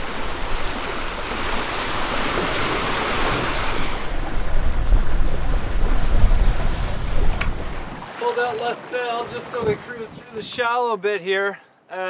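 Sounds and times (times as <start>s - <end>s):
wind buffeting microphone: 0.0s - 8.1s, 9.2s - 10.7s
water rushing past boat hull: 0.0s - 10.7s
low rumbling: 3.4s - 8.0s.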